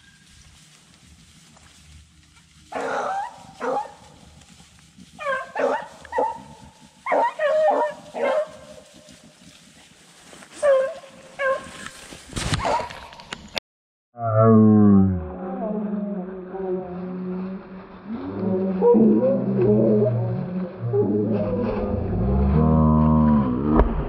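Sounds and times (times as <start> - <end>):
dogs baying: 2.7 - 4.0, 5.2 - 8.7.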